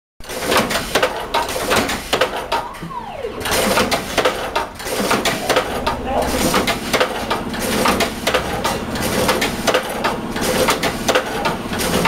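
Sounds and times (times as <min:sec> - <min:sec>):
fish cutting machine clattering: 0:03.5 - 0:12.0
short falling whine: 0:05.1 - 0:07.6.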